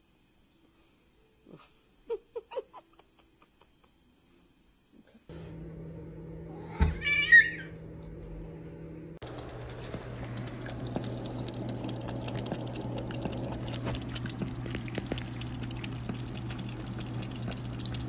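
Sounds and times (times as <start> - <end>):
cat crying: 6.5 - 7.8
water drip clicks: 9.2 - 18.0.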